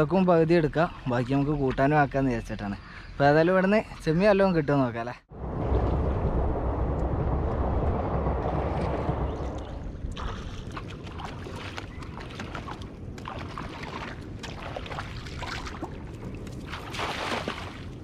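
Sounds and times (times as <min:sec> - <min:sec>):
rushing water and wind: 0:05.3 - 0:18.0
wading through shallow water: 0:08.5 - 0:18.0.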